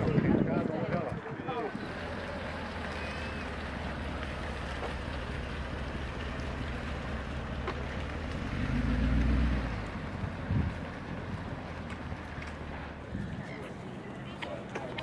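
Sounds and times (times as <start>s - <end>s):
car engine idling: 1.7s - 13.1s.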